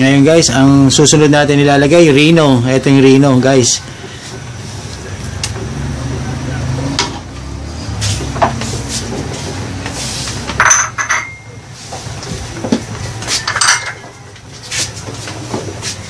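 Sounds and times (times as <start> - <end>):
metal pots and utensils clinking: 10.5 - 11.7, 13.2 - 14.3.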